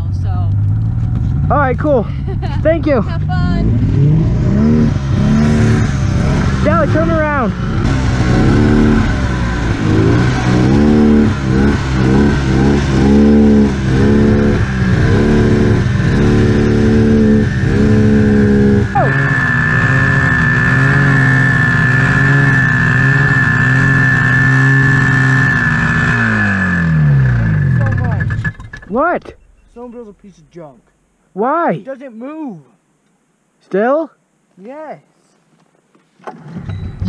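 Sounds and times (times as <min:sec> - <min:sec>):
high whine: 0:01.1 - 0:31.2
snowmobile engine revving: 0:01.4 - 0:29.1.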